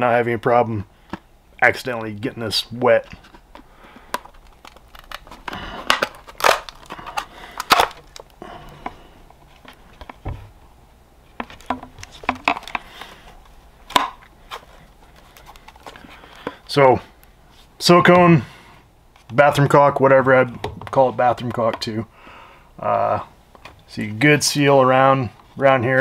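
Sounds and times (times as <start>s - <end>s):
handling rustle: 2.7s - 10.6s, 11.3s - 17.8s
plastic cracking and creaking: 2.8s - 9.0s, 11.4s - 13.2s, 13.9s - 16.8s.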